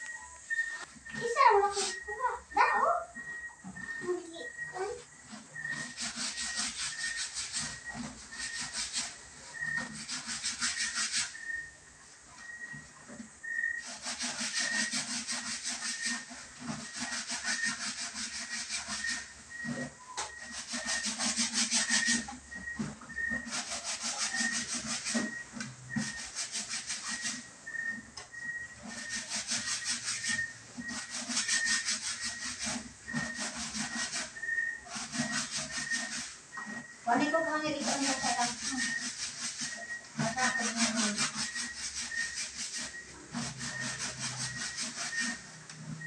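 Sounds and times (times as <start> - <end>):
faint high peep: 0.0 - 8.8, 9.5 - 10.0
wet clothes scrubbed by hand: 0.5 - 11.7, 13.8 - 28.0, 28.8 - 46.0.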